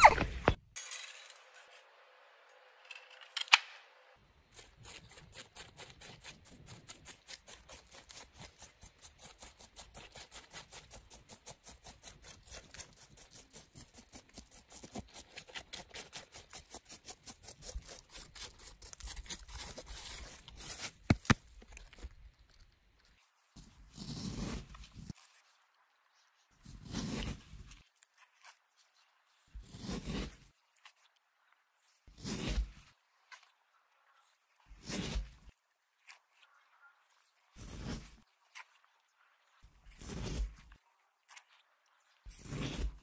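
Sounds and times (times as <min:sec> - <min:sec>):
fingers rubbing sunflower seeds: 0:04.5 - 0:22.2.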